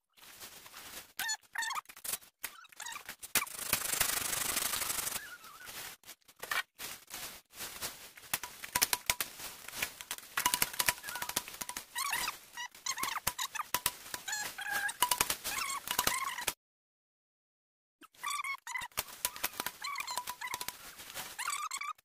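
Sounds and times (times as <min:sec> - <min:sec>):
bamboo leaves rustling: 0:00.1 - 0:01.3, 0:01.9 - 0:16.5, 0:18.8 - 0:21.6
bamboo pole scraping and snapping: 0:08.2 - 0:16.6, 0:18.8 - 0:21.4
sharp clicks: 0:08.3 - 0:12.3, 0:18.9 - 0:20.9.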